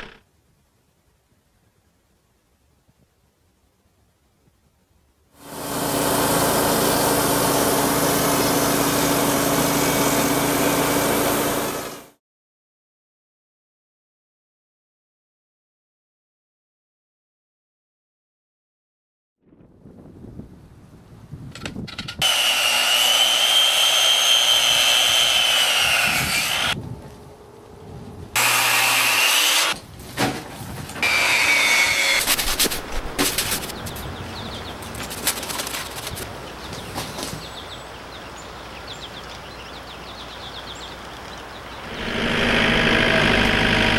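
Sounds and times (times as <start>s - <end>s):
band sawmill running: 5.4s - 12.1s, 22.2s - 26.8s, 28.4s - 29.8s, 31.0s - 33.7s, 41.9s - 43.9s
power saw cutting wood: 5.4s - 12.1s, 22.2s - 26.8s, 28.4s - 29.8s, 31.0s - 33.8s, 41.9s - 43.9s
handsaw strokes: 22.2s - 26.8s, 28.4s - 29.8s, 31.0s - 33.7s
engine humming: 41.6s - 43.9s.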